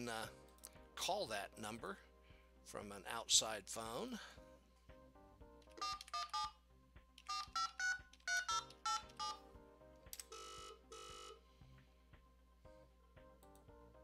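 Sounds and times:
soft background music: 0.0 - 14.0
telephone keypad tones: 5.8 - 6.6, 7.2 - 9.4, 10.3 - 11.4.

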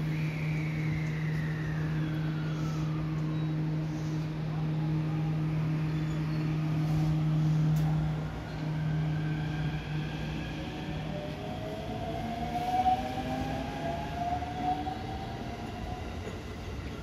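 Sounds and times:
rising motor whine: 0.0 - 15.6
electric train humming: 0.0 - 17.0
wheels rumbling on rails: 0.0 - 17.0.

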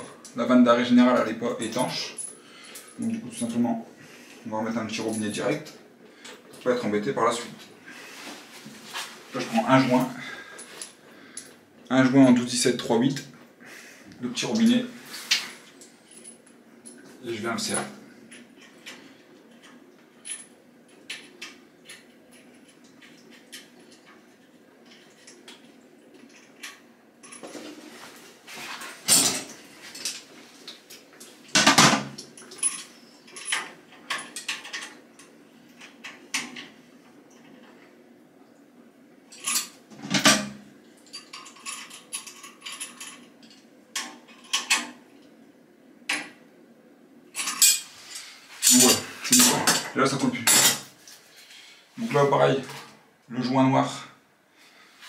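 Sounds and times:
metal clinks and scrapes: 41.0 - 43.7.

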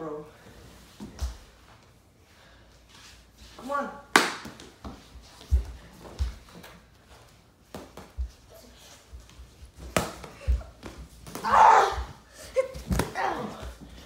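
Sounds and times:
sharp slap: 4.1 - 4.6
child yelling: 11.4 - 12.2.

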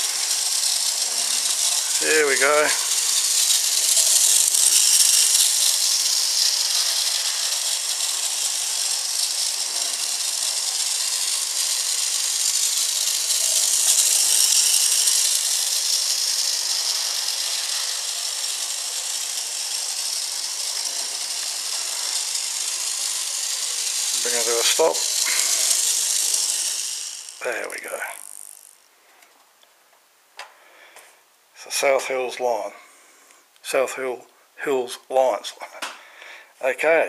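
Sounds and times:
model train rattle and whir: 0.0 - 28.9.

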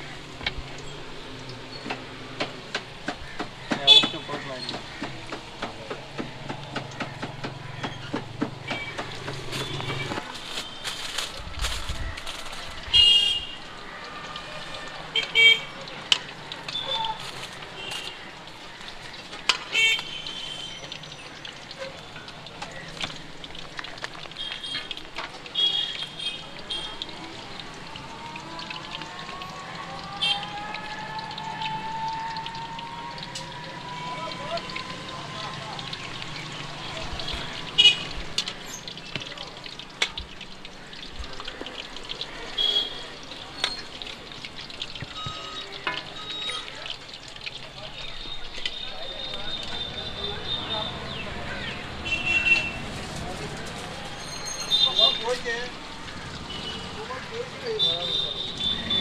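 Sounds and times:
oil frying hiss: 0.0 - 51.2.

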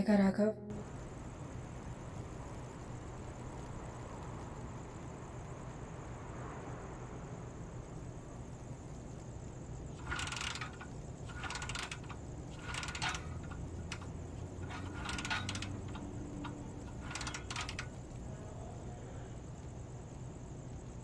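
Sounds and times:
rapid mechanical clicking: 9.8 - 18.3.

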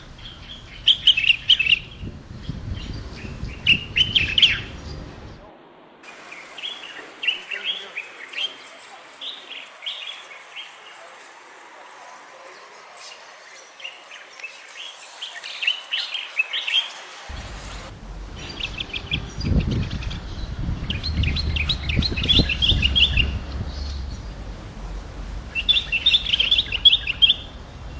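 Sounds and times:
bird singing chattering phrases: 0.0 - 5.4, 18.4 - 27.9
low rumble: 17.3 - 27.9.

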